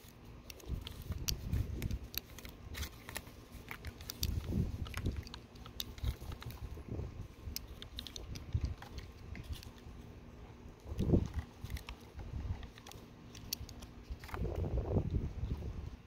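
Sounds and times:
plastic toy pieces clicking: 0.4s - 6.7s, 7.5s - 9.8s, 10.9s - 14.4s.

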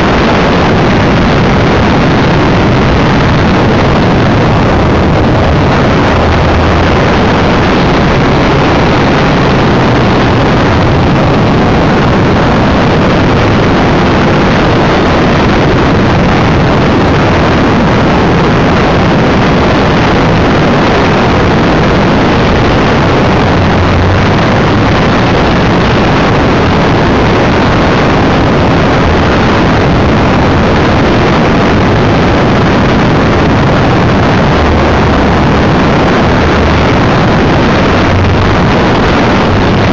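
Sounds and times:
rushing airflow: 0.0s - 39.9s.

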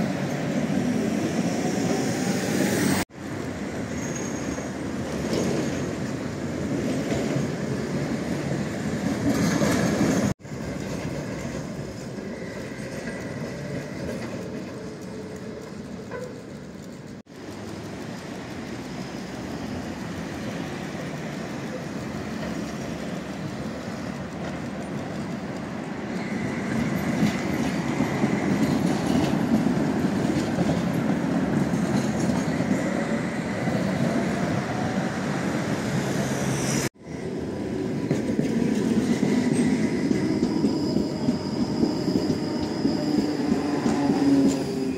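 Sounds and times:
tram wheels rumbling on rails: 0.0s - 44.9s
high wheel squeal: 3.7s - 4.8s, 12.0s - 16.6s, 25.9s - 29.2s, 39.0s - 44.9s.

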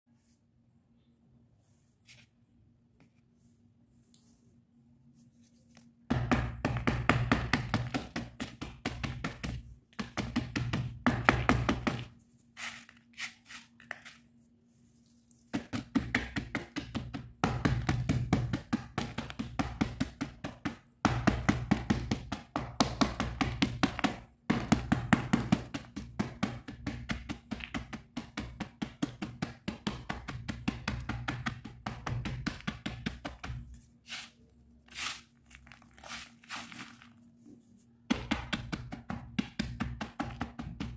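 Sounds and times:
pestle crunching pencil pieces: 34.1s - 37.2s.

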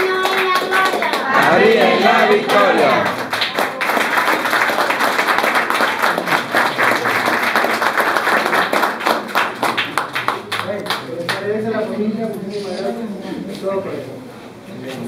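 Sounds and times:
audience clapping: 0.0s - 11.5s
people singing: 1.2s - 3.2s.

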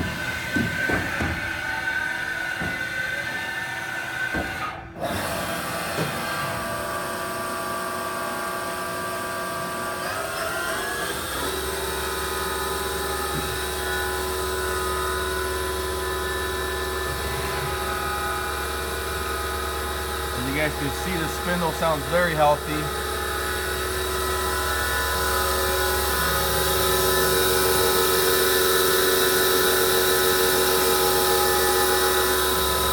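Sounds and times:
machining center whine: 11.4s - 32.9s.

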